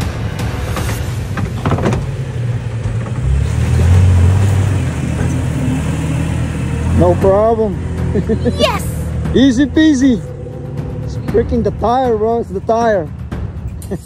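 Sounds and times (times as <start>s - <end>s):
truck engine under load: 0.1s - 8.3s.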